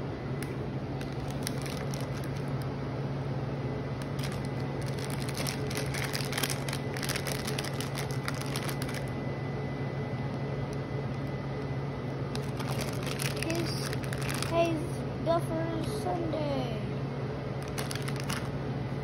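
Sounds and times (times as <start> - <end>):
steady low hum: 0.0 - 19.0
crackly handling noises: 0.3 - 2.8, 3.9 - 9.3, 10.2 - 14.9, 17.6 - 18.6.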